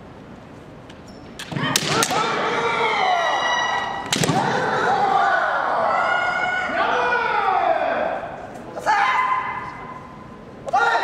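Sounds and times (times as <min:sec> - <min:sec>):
bamboo swords cracking: 0:01.4 - 0:02.3, 0:04.0 - 0:04.5
fencers shouting: 0:01.6 - 0:11.0.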